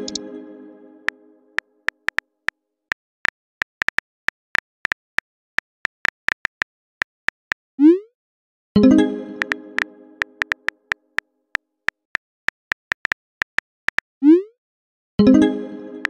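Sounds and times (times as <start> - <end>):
keyboard key clicks: 3.6 - 5.2, 9.4 - 11.2, 11.9 - 14.0.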